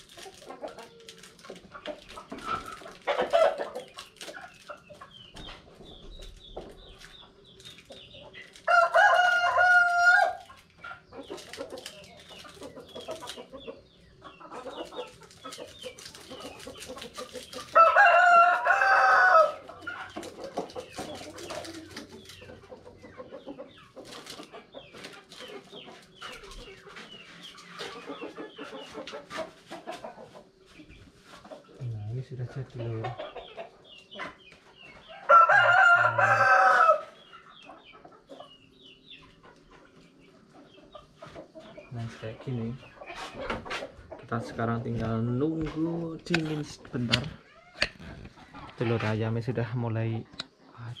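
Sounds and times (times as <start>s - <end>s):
chickens clucking: 0.0s - 51.0s
rooster crowing: 8.7s - 10.5s, 17.8s - 19.7s, 35.2s - 37.2s.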